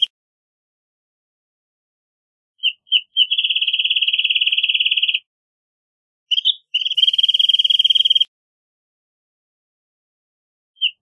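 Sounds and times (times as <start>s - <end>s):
bird song with trill: 2.6s - 5.3s, 6.3s - 8.3s, 10.7s - 11.0s.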